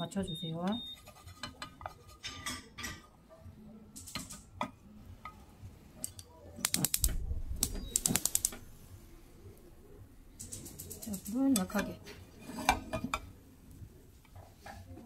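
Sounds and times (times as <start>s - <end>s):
chopsticks scraping frying pan: 1.0s - 2.7s, 11.6s - 13.2s
sharp clicks: 6.0s - 8.6s
pan sliding on stove grate: 12.2s - 13.2s.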